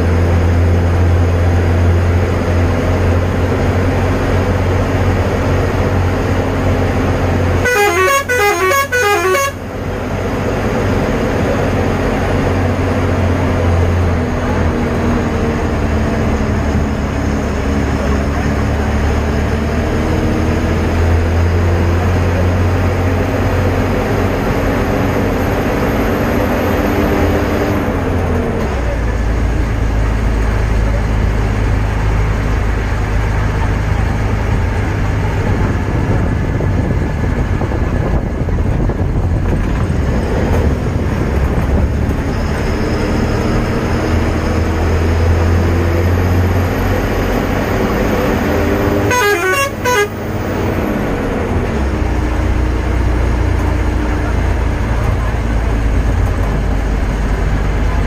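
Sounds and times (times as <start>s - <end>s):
vehicle engine and tyre noise: 0.0s - 58.0s
musical multi-note horn: 7.6s - 9.6s, 49.0s - 50.3s.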